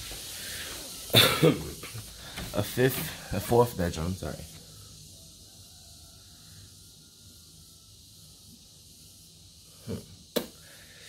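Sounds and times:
soft hiss: 0.0 - 11.0.

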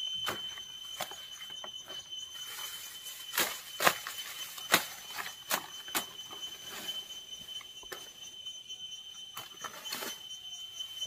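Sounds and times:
high-pitched insect drone: 0.0 - 11.0.

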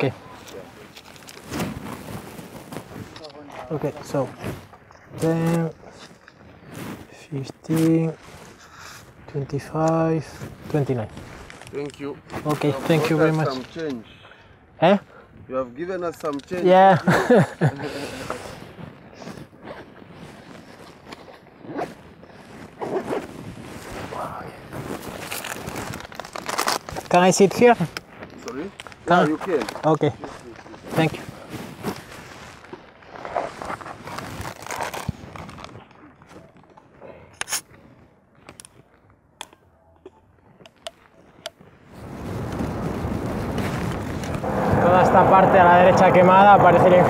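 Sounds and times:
zipper pulled: 19.2 - 24.1, 33.2 - 35.8
wind rushing: 42.0 - 47.0.

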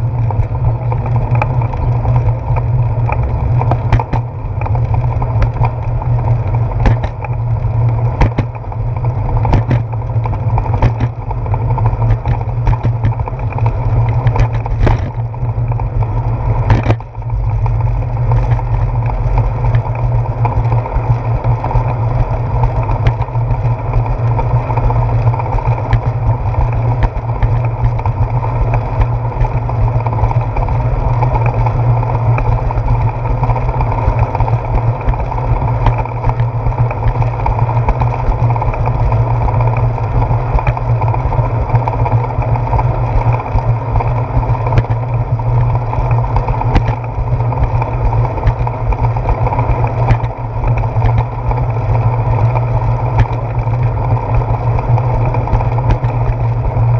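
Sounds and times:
wind and ride rumble: 0.0 - 56.9
bike knocking over bumps: 3.2 - 15.3.

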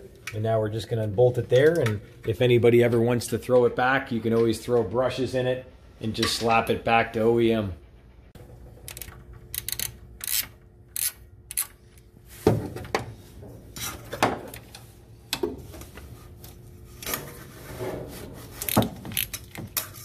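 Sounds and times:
ratchet clicking: 8.8 - 11.8
metal scraping: 17.0 - 20.0.

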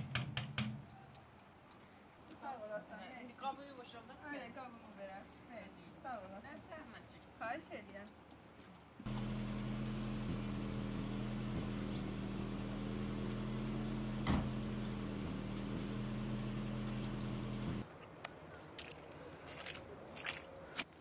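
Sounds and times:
motor humming: 9.1 - 17.8.

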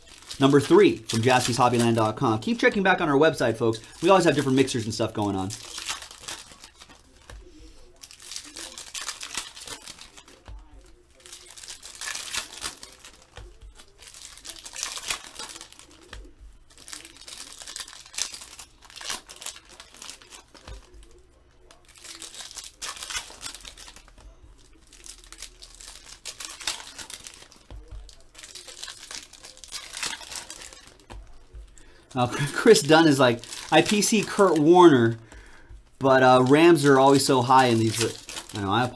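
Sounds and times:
foil wrappers crinkling and tearing: 0.0 - 38.9.

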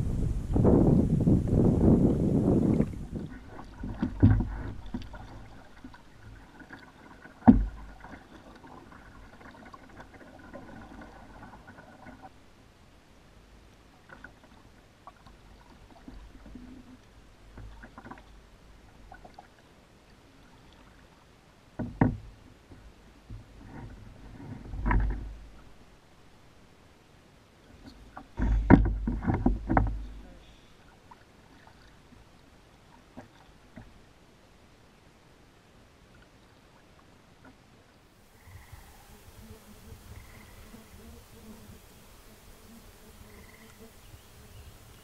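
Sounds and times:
paddle dipping and dripping: 1.8 - 12.6, 13.2 - 24.0, 27.6 - 34.4
paddle knocking against hull: 2.7 - 5.6, 6.3 - 8.2, 21.8 - 25.5, 27.8 - 30.3.

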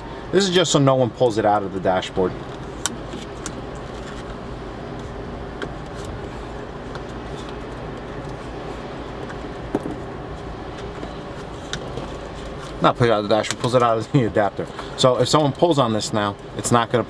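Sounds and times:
steady low hum: 0.0 - 17.0
electrical tape handling: 2.4 - 12.8.

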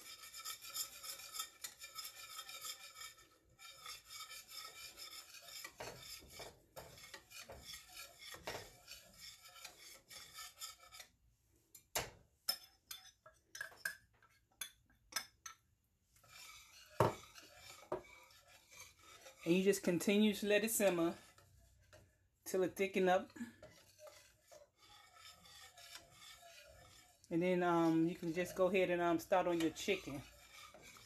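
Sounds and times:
whisk scraping a saucepan: 0.0 - 31.0
whisk knocking against pan: 0.1 - 10.8, 16.2 - 22.1, 23.6 - 31.0.

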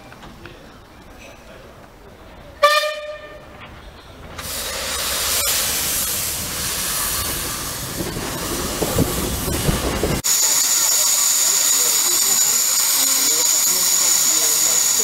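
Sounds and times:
steam locomotive hissing steam: 4.4 - 15.0.

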